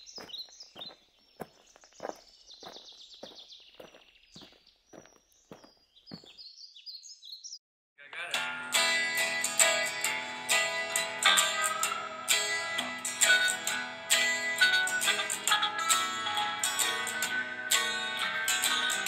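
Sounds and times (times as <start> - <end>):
faint high chirping: 0.0 - 7.6
strummed and plucked guitar: 8.3 - 19.0.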